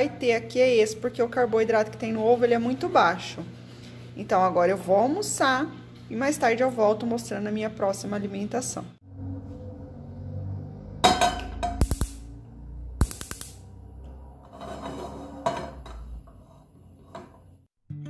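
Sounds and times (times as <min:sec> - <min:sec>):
gas burner igniter clicks: 0:13.0 - 0:13.6.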